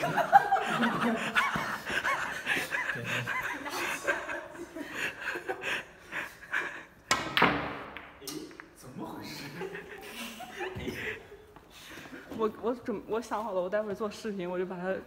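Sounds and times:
people snickering and giggling: 0.0 - 7.0, 9.3 - 12.1.

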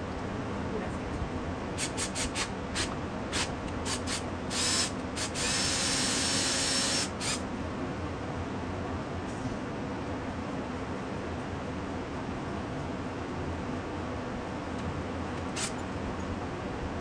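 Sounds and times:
cordless drill drilling: 3.9 - 7.4.

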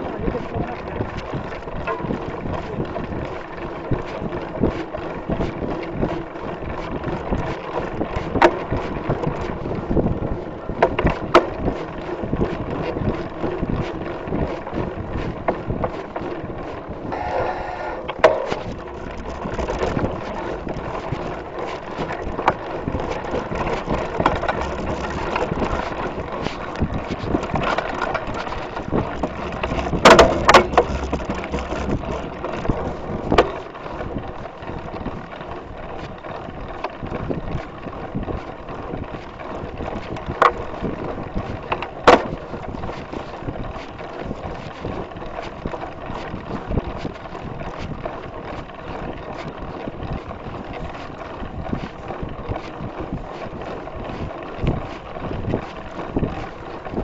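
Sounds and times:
wind on microphone: 0.0 - 35.8, 37.0 - 57.0
bike rattling over trail: 0.0 - 57.0
bike knocking on bumps: 18.0 - 35.2, 36.0 - 49.5.

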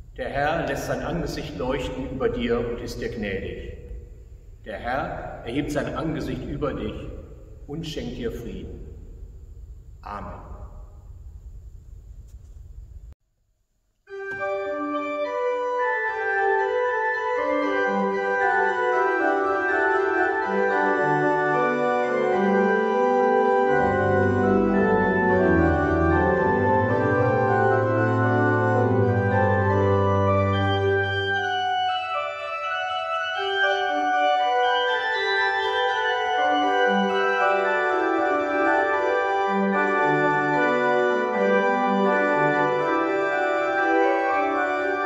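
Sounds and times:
pipe organ chords: 0.0 - 11.1, 14.1 - 45.0
organ pedal bass notes: 4.7 - 8.9, 14.1 - 45.0.

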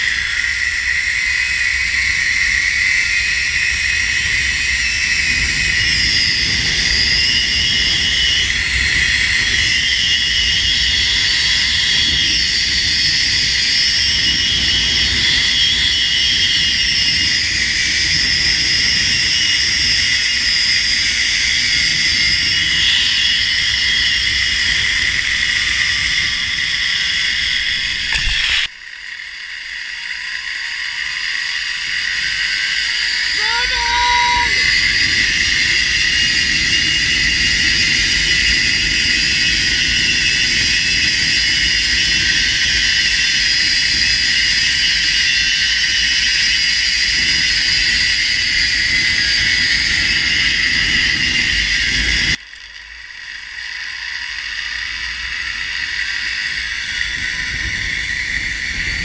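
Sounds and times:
zipline pulleys whining on cable: 0.0 - 59.0
wind rumble on microphone: 1.2 - 28.6, 55.4 - 59.0.

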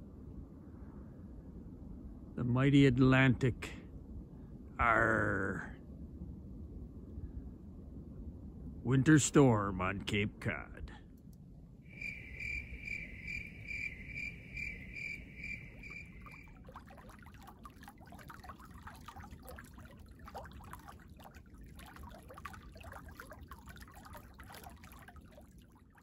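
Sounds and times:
low steady rumble: 0.0 - 26.0
cricket-like chirping trill: 11.9 - 17.1
water dripping and trickling: 12.0 - 26.0.

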